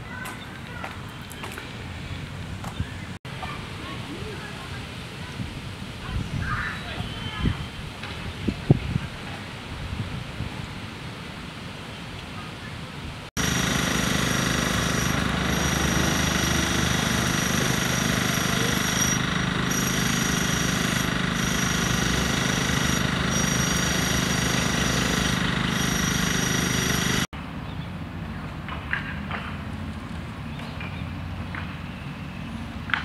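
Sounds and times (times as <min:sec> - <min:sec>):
high whining tones: 0:13.4 - 0:27.3
loud buzzing drone: 0:13.4 - 0:27.3.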